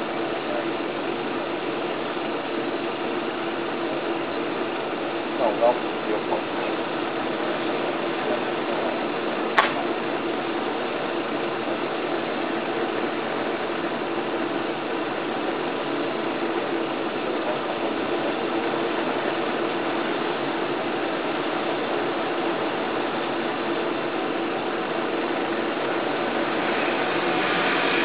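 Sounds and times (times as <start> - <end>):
sharp click: 9.6 - 9.8.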